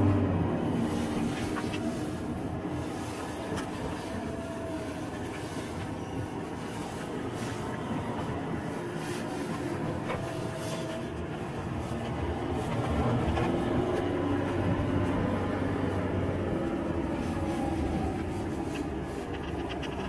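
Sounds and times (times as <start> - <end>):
car engine and tyre rumble: 0.0 - 20.0
small clicks and rattles: 18.6 - 20.0.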